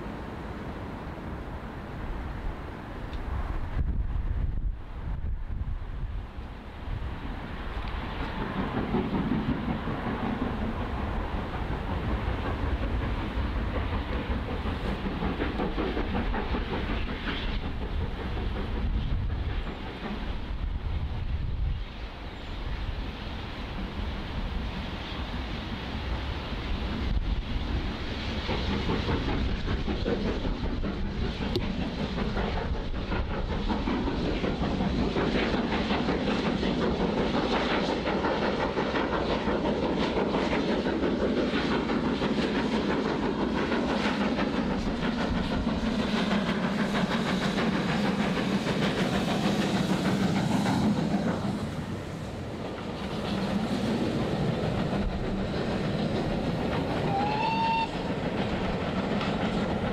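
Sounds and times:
steam locomotive exhaust beats: 1.9 - 59.9
train wheels clattering over rail joints: 7.7 - 20.6, 26.8 - 52.0, 52.6 - 59.9.

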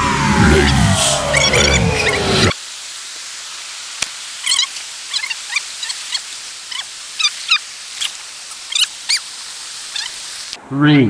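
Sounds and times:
stream cascading over boulders: 2.6 - 10.6.

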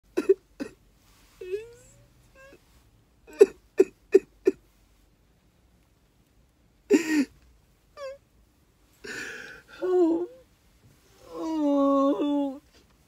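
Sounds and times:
man sobbing: 6.9 - 7.3, 9.0 - 10.4.

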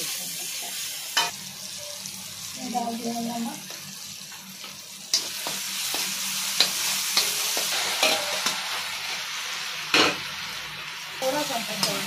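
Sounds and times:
food sizzling in hot oil: 0.0 - 12.0
metal spoon striking pan: 5.1 - 8.6.

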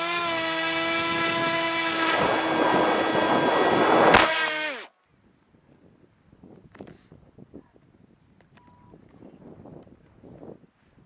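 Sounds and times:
electric motor and propeller whining: 0.0 - 4.9.

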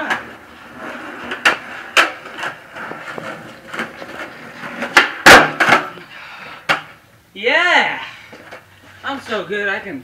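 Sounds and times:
skateboard wheels rolling on concrete: 0.0 - 7.0
skateboard clacks: 1.2 - 6.0
skateboard tail pop: 4.8 - 5.9
skateboard landing smack: 4.8 - 6.0.

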